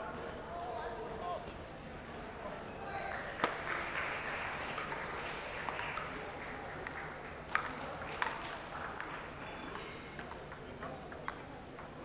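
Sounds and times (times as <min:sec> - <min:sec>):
hum of large hall: 0:00.0 - 0:12.0
table tennis balls clicking: 0:06.8 - 0:12.0.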